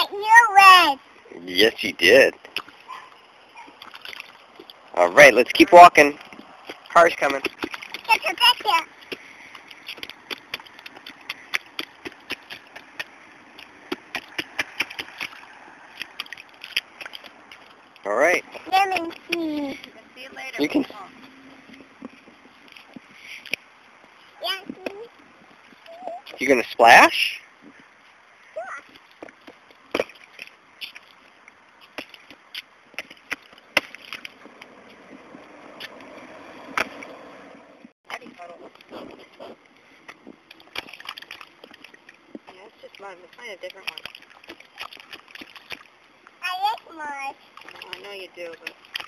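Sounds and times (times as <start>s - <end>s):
boots splashing in a puddle: 2.4s - 21.9s, 28.9s - 37.2s, 40.0s - 49.0s.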